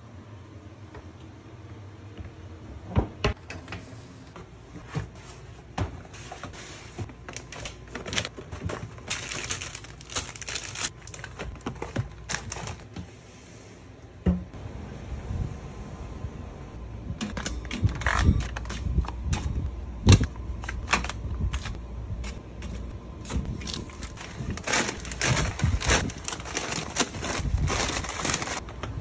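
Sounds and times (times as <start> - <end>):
plastic packaging crinkling: 6.2 - 12.9, 22.6 - 28.8.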